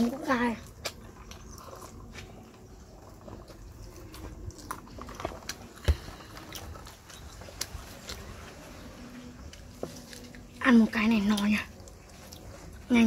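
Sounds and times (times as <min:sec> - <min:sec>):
people chewing food: 0:00.0 - 0:13.0.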